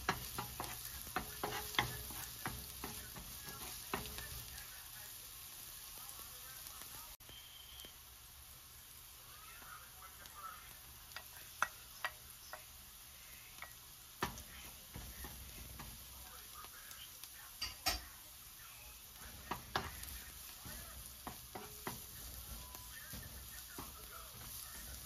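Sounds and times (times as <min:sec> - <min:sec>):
wooden spatula tapping pan: 0:00.0 - 0:04.7, 0:11.1 - 0:12.8, 0:13.6 - 0:16.8, 0:19.2 - 0:25.0
food sizzling in a wok: 0:00.0 - 0:25.0.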